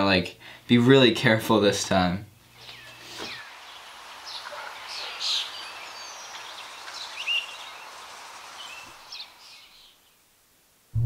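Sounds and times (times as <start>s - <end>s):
steady background hiss: 0.0s - 11.0s
bird chirps: 2.5s - 10.3s.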